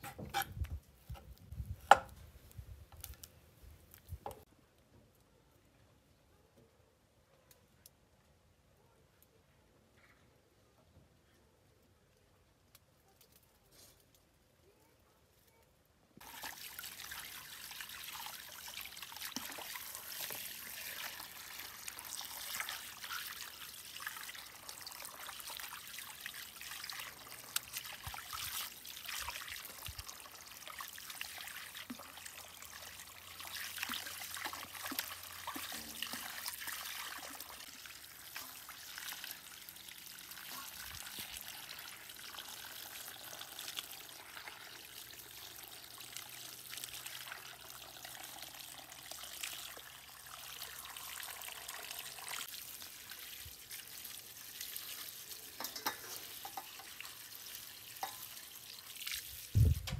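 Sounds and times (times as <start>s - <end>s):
water running and splashing in basin: 16.2s - 59.9s.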